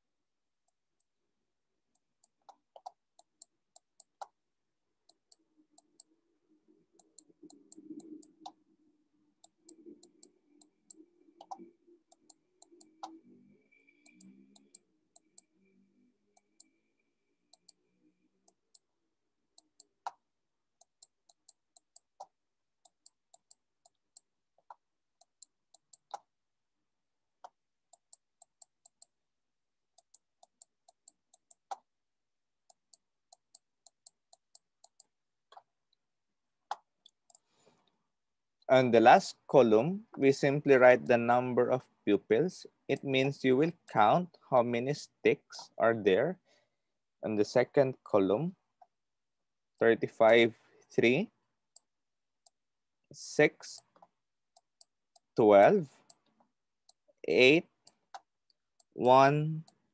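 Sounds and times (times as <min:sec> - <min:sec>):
computer mouse clicks: 0:01.9 - 0:04.4, 0:07.0 - 0:08.6, 0:09.4 - 0:15.6, 0:17.5 - 0:17.8, 0:20.8 - 0:26.3, 0:30.0 - 0:31.9, 0:32.7 - 0:35.7, 0:57.7 - 0:59.0.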